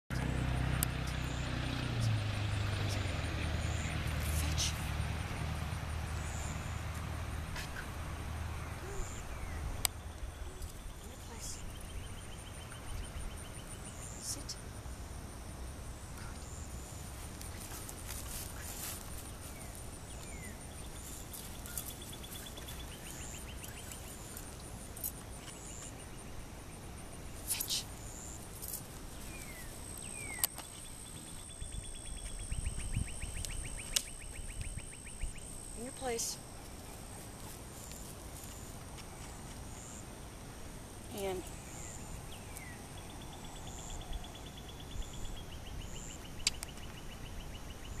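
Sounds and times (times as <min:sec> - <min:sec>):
steady low rumble: 0:00.1 - 0:47.8
insects chirping: 0:00.1 - 0:48.0
sharp clicks: 0:46.4 - 0:46.8.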